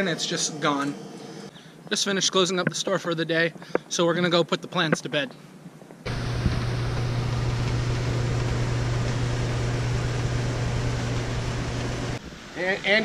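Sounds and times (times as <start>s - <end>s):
fan humming and rushing: 6.1s - 12.3s.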